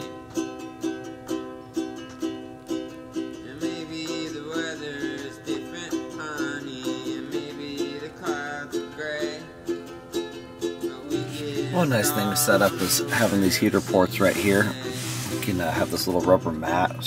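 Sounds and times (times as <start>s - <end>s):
plucked strings music: 0.0s - 17.0s
sliding melody line: 11.1s - 17.0s.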